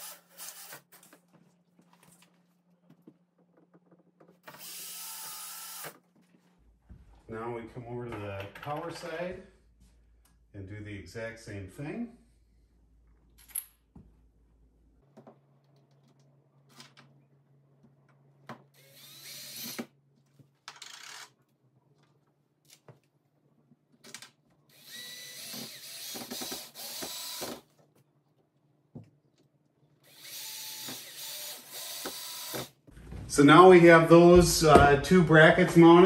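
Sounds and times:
cordless drill driving screws: 0.0s - 0.8s, 4.4s - 6.0s, 18.8s - 19.9s, 24.7s - 27.6s, 30.0s - 32.7s.

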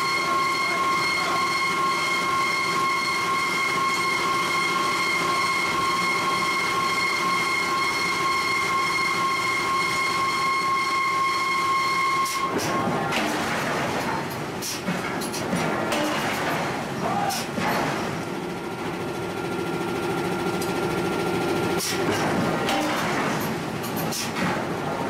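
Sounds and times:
high-pitched machine whine: 0.0s - 13.4s, 18.4s - 22.0s.

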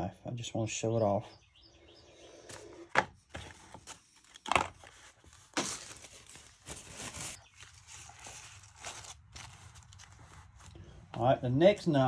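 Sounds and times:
paper rustling and crinkling: 2.5s - 11.1s.

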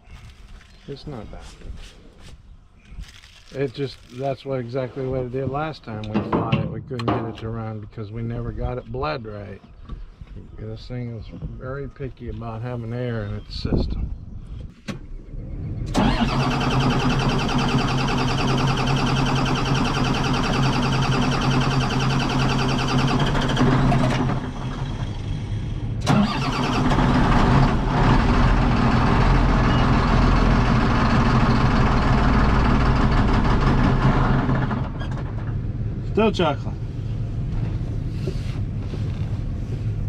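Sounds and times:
diesel engine cranking on starter: 15.3s - 35.7s.

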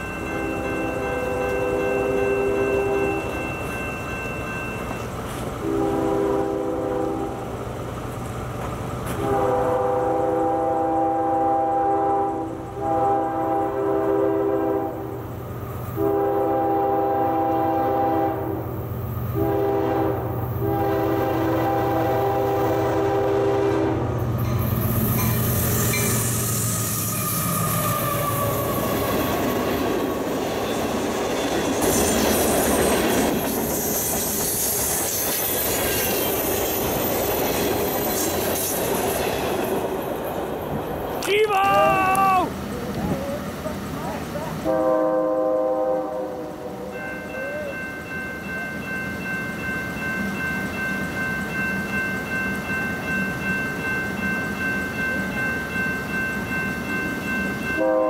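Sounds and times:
locomotive horn blasts: 5.6s - 7.4s, 9.1s - 15.2s, 16.0s - 18.6s, 19.3s - 24.1s, 44.6s - 47.0s, 57.8s - 58.0s.

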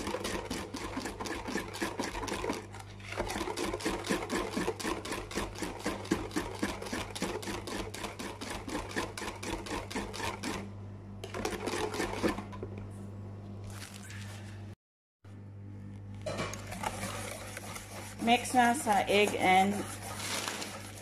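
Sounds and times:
utensil whisking in a bowl: 0.0s - 10.6s, 11.2s - 12.6s, 16.3s - 21.0s.

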